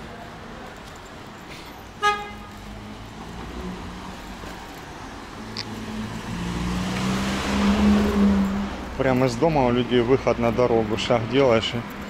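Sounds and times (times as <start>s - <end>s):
car engine approaching: 0.0s - 12.0s
car horn toot: 2.0s - 2.5s.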